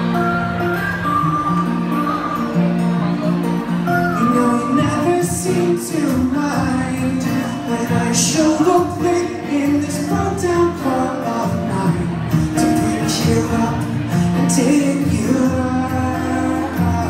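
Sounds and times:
acoustic guitars playing: 0.0s - 17.0s
man singing: 4.1s - 17.0s.

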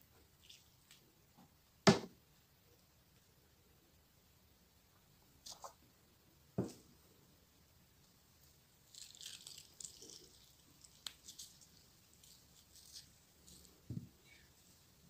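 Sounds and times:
lime squeezed squishing and dripping: 8.0s - 15.0s.

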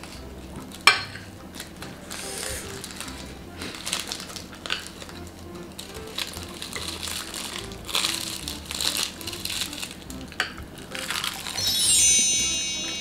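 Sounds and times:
seaweed crackling and crunching: 0.0s - 11.9s
bright chime ringing: 11.5s - 13.0s.

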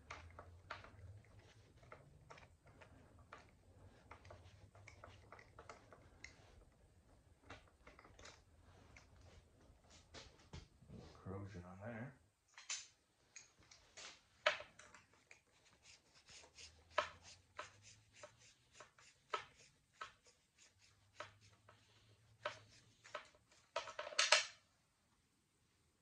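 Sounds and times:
light clicks of handling parts: 12.5s - 15.5s.

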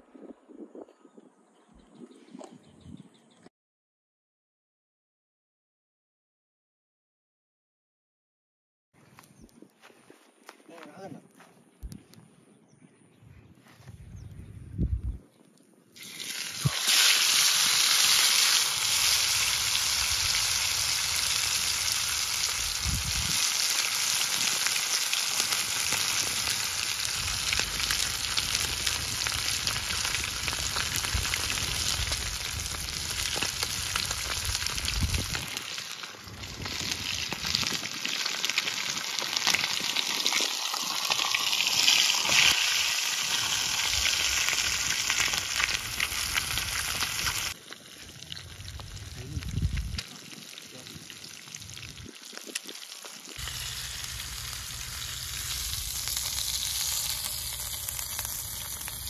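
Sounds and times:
fish sizzling in hot oil: 16.0s - 59.0s.

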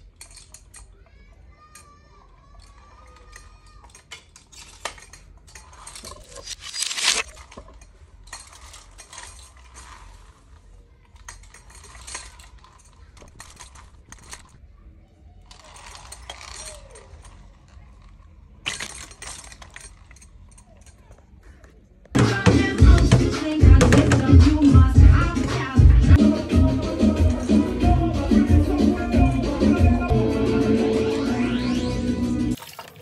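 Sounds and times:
knives clattering in metal stand: 0.0s - 1.0s, 1.7s - 10.4s, 11.1s - 14.6s, 15.5s - 21.4s.

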